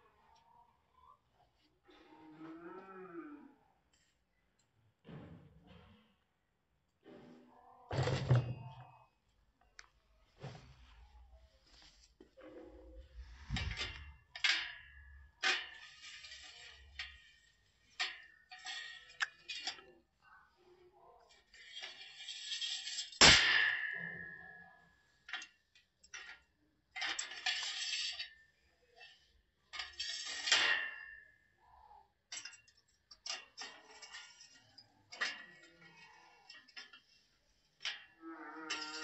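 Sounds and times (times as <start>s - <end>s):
steel tubes clanking and scraping: 7.9s - 9.0s, 12.4s - 20.6s, 21.2s - 39.0s.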